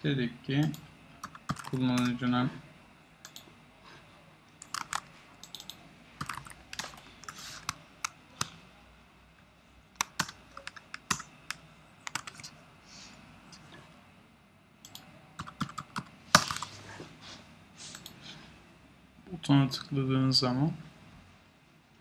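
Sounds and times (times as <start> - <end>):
typing on keyboard: 0.6 - 2.1, 4.6 - 7.8, 10.0 - 12.5, 14.9 - 16.6.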